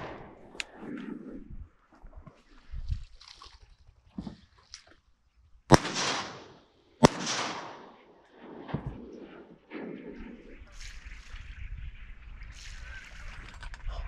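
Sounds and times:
shotgun shots with echo: 0:05.7 - 0:09.1.

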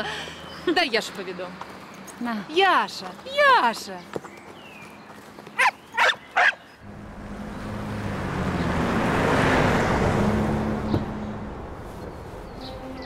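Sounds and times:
small dog barking: 0:05.6 - 0:06.6
car driving past: 0:06.8 - 0:13.0.

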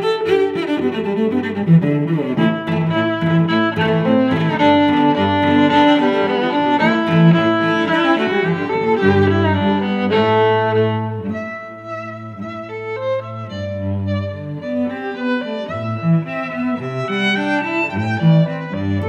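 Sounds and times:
bowed strings music: 0:00.0 - 0:19.0.

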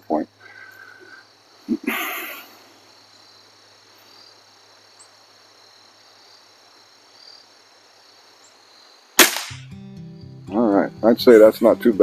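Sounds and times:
insects trilling: 0:00.0 - 0:09.2.

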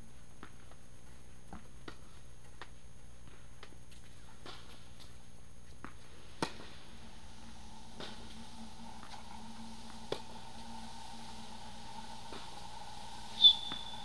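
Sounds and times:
steady background hum: 0:00.0 - 0:14.0
tennis racket hitting ball: 0:05.8 - 0:06.8.

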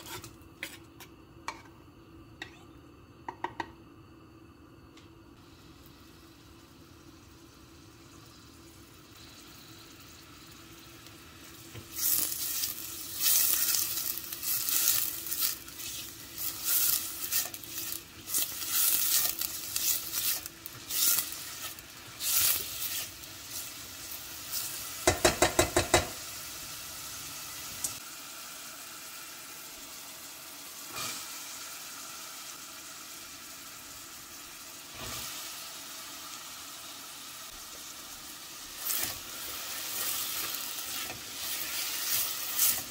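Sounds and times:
spatula scraping a pot: 0:00.0 - 0:00.9, 0:12.0 - 0:23.7
onion sizzling in oil: 0:00.0 - 0:01.6, 0:05.4 - 0:42.9.

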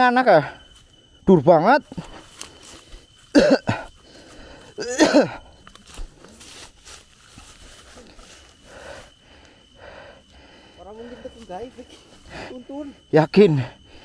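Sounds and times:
person coughing: 0:03.3 - 0:03.9, 0:04.8 - 0:05.5.

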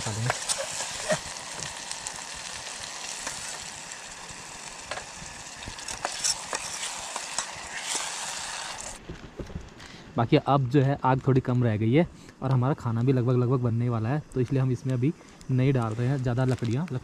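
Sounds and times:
vegetables sizzling in hot oil: 0:00.0 - 0:09.0, 0:14.5 - 0:17.0.

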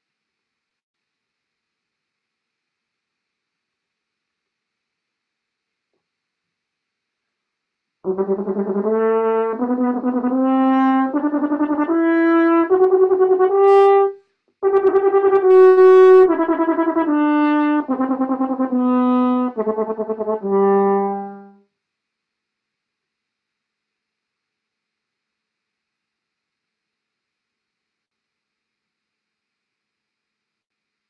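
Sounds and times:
french horn fast repeated notes: 0:08.0 - 0:21.6
breath: 0:14.2 - 0:14.6.

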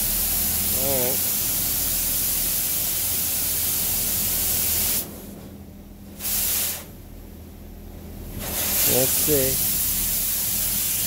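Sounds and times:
high-pressure water jets hissing: 0:08.4 - 0:11.0.

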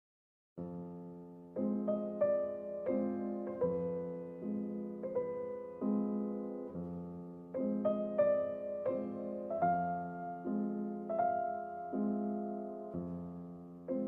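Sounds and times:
slow gentle piano: 0:00.6 - 0:14.0.

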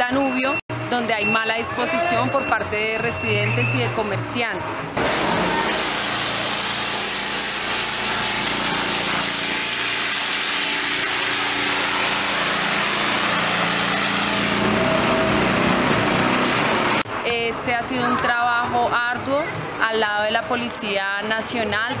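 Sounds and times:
engine running: 0:04.6 - 0:17.2
loud even hiss: 0:05.0 - 0:14.6.

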